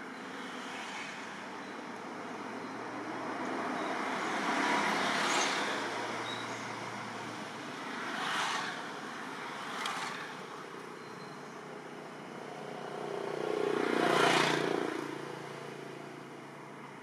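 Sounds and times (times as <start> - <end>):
vehicle passing: 12.4 - 16.0.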